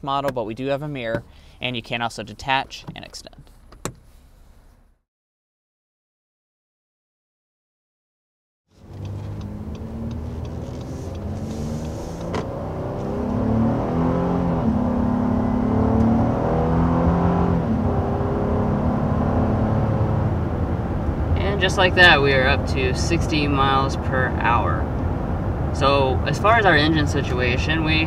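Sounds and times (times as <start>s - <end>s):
car engine accelerating hard: 8.7s - 28.0s.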